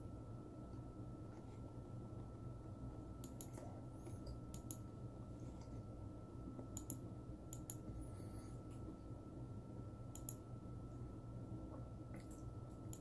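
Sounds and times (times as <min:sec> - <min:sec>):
low room hum: 0:00.0 - 0:13.0
faint sharp clicks: 0:04.2 - 0:04.8, 0:06.6 - 0:07.8, 0:10.1 - 0:10.4, 0:12.2 - 0:13.0.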